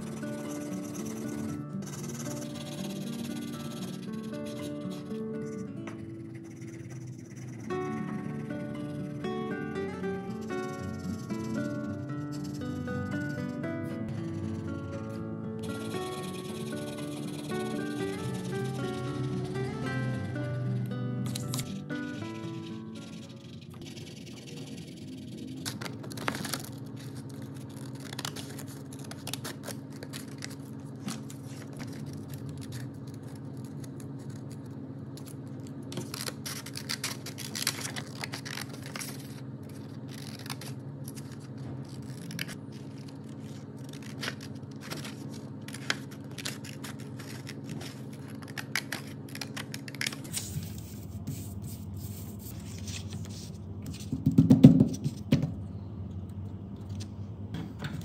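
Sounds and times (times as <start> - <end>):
scissors snipping paper: 0.0 - 9.0, 10.3 - 19.8, 21.3 - 53.3
low hum: 0.0 - 54.1, 55.0 - 58.0
paper pressed flat thump: 53.9 - 55.6.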